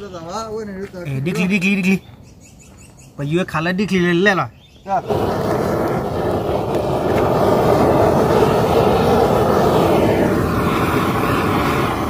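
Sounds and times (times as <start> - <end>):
propane torch hissing: 4.9 - 12.0.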